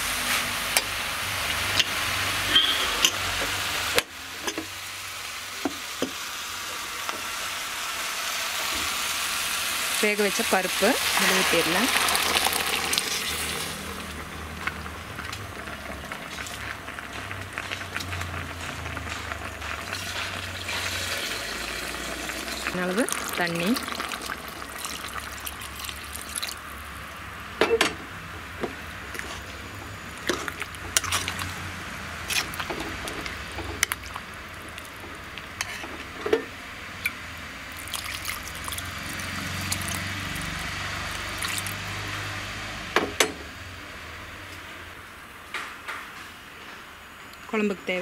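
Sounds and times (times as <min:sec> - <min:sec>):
water pouring into a pot: 0:09.0 - 0:14.8, 0:15.5 - 0:26.9, 0:37.7 - 0:42.0.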